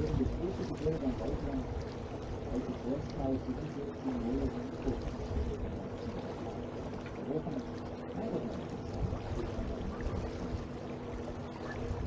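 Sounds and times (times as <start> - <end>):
steady low hum: 0.0 - 12.0
water rushing along boat hull: 0.0 - 12.0
faint passenger voices: 2.5 - 6.4, 7.2 - 10.6, 11.3 - 12.0.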